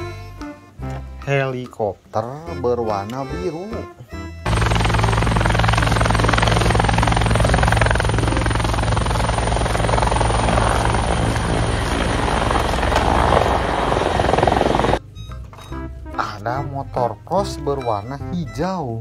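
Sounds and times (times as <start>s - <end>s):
helicopter rotor blades chopping: 4.4s - 15.0s.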